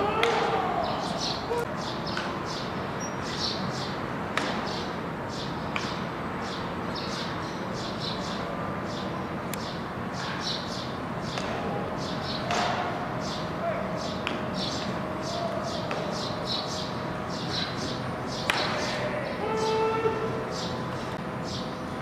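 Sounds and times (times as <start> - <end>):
steady background hiss: 0.0 - 22.0
baseball striking a mitt: 0.2 - 0.6, 18.4 - 19.0
small birds chirping: 0.2 - 19.8, 20.5 - 21.8.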